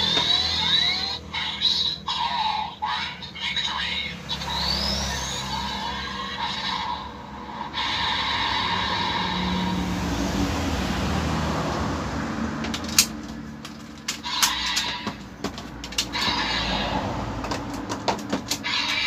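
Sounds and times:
toy electronic sound effects: 0.0s - 9.7s, 14.0s - 17.1s, 18.5s - 19.0s
sharp plastic click: 12.6s - 16.3s.

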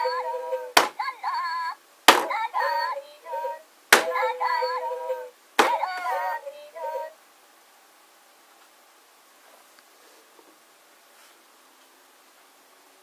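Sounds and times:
squeaky toy singing and gibberish: 0.0s - 7.1s.

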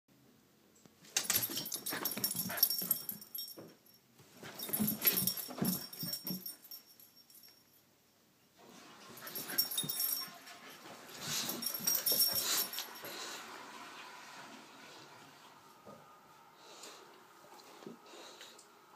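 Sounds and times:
dogs playing and scuffling: 1.0s - 7.6s, 8.6s - 14.5s.

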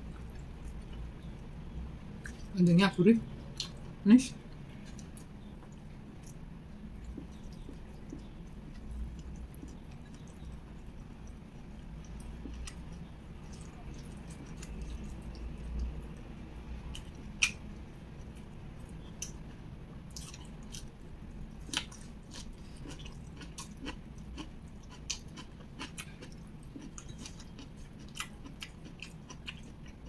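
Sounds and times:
chewing and biting leaves: 20.1s - 30.0s.

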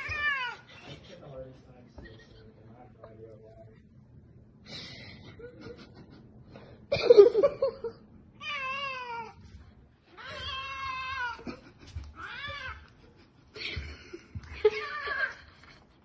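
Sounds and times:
cat yowling: 0.0s - 0.7s, 8.4s - 9.4s.

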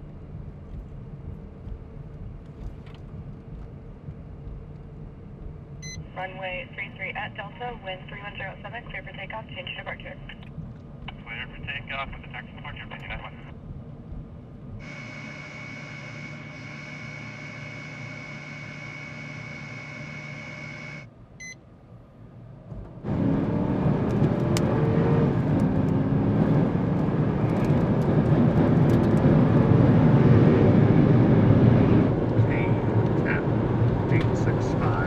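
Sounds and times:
brief beep: 5.8s - 6.0s, 21.4s - 21.6s
jet engine: 14.8s - 21.1s, 23.1s - 35.0s.

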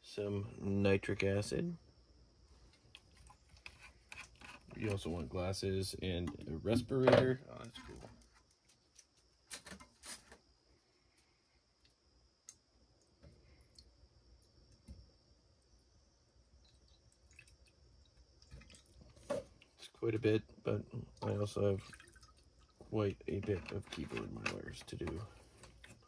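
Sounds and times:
faint high-pitched whine: 0.0s - 26.0s
liquid trickling into glass dish: 16.6s - 17.8s, 21.8s - 22.8s.

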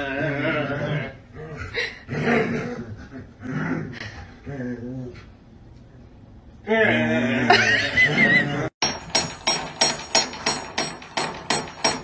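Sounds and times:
sharp knocks: 8.8s - 12.0s.

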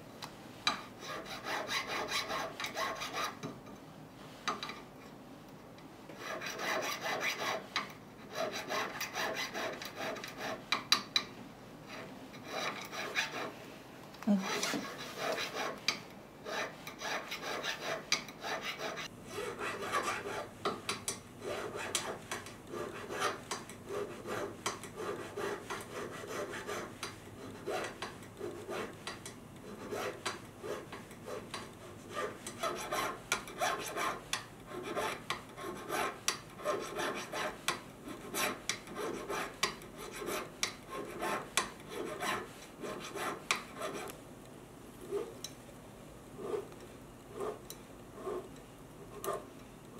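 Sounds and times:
needle file rasping on metal: 1.0s - 3.4s, 6.2s - 10.9s, 11.9s - 13.6s, 14.3s - 20.5s, 21.4s - 44.2s.

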